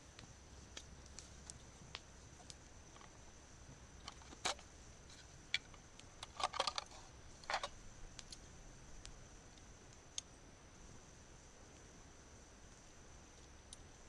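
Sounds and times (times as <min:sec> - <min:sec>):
camping stove clicks and rattles: 0:04.0 - 0:04.7, 0:05.5 - 0:08.4.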